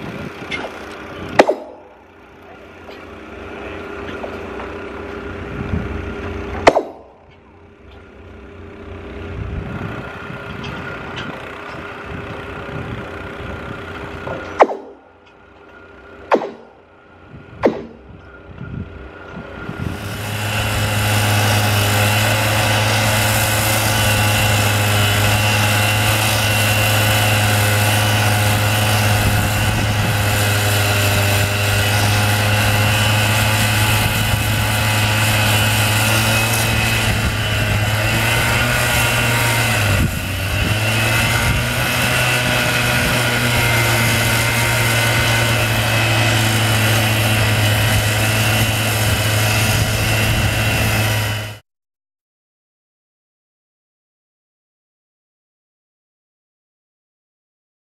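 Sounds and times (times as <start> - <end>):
disc cutter grinding steel rail: 19.6 - 51.6.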